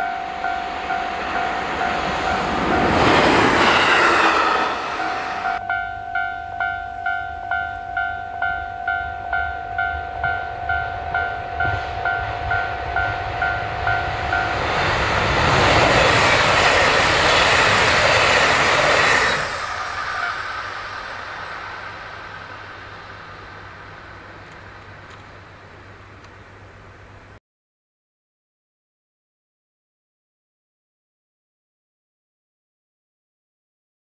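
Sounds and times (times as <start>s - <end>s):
level-crossing alarm dinging: 0.0s - 3.4s, 4.0s - 14.8s
diesel train passing: 0.0s - 27.4s.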